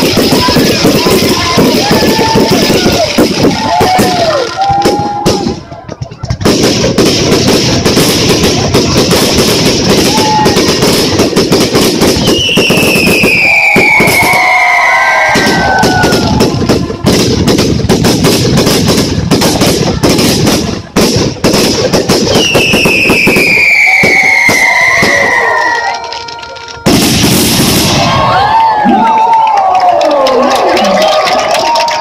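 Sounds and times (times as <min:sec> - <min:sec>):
fireworks bursting and crackling: 0:00.0 - 0:29.8
falling firework whistle: 0:12.1 - 0:17.2, 0:22.2 - 0:28.6.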